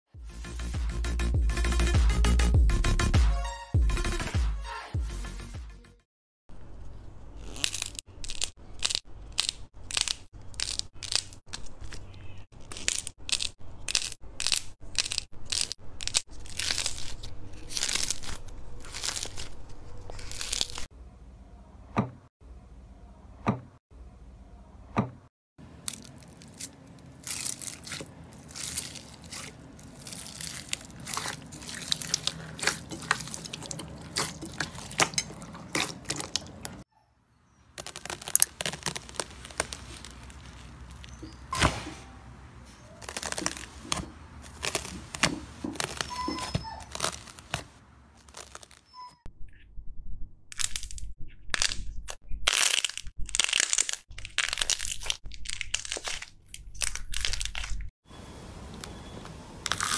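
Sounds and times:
slime crackling and squelching: 0:07.4 - 0:20.9, 0:25.7 - 0:36.9, 0:37.7 - 0:41.8, 0:42.6 - 0:49.1, 0:50.5 - 0:57.9.

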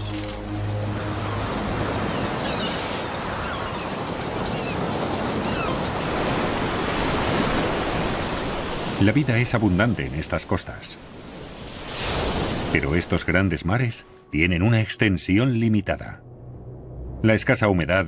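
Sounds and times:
sea waves washing on beach: 0:00.0 - 0:13.7.

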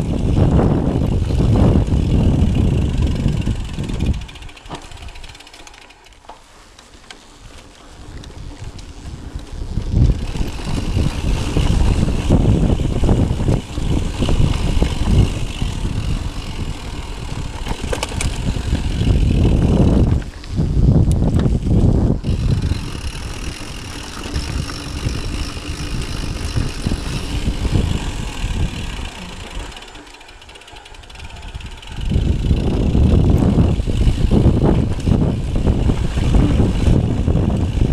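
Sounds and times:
wind on microphone: 0:00.0 - 0:05.2, 0:08.0 - 0:29.9, 0:31.1 - 0:37.9
freehub ratchet buzzing: 0:00.0 - 0:06.3, 0:08.9 - 0:37.9
bike frame and chain rattling: 0:00.0 - 0:37.9
tyres rumbling on dirt: 0:07.7 - 0:37.9.

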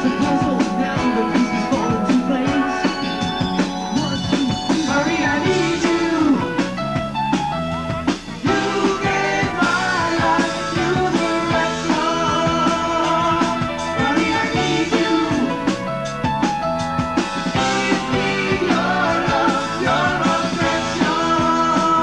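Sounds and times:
person singing: 0:00.0 - 0:03.3, 0:03.9 - 0:06.6, 0:08.5 - 0:15.7, 0:17.6 - 0:22.0
rock band playing live: 0:00.0 - 0:22.0.

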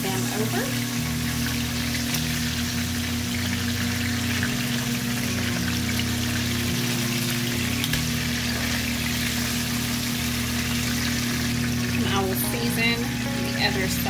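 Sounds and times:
meat sizzling in hot oil: 0:00.0 - 0:14.0
oil popping: 0:01.0 - 0:12.2.

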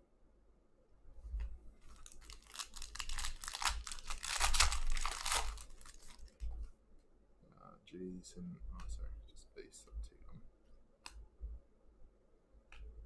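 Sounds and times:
foil wrapper crinkling: 0:01.9 - 0:06.4.

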